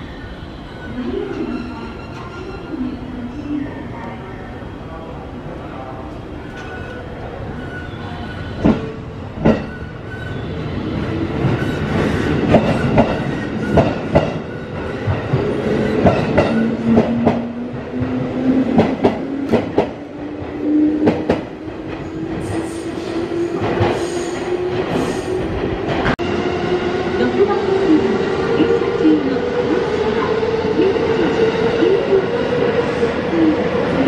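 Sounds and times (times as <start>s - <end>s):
train clanks: 8.6s - 10.4s, 11.4s - 26.2s
train wheels clacking over rail joints: 11.5s - 15.4s.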